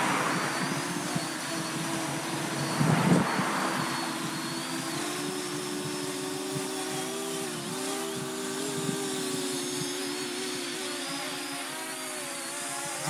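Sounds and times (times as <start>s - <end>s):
wind noise: 0.0s - 7.0s
drone propellers buzzing: 0.0s - 13.0s.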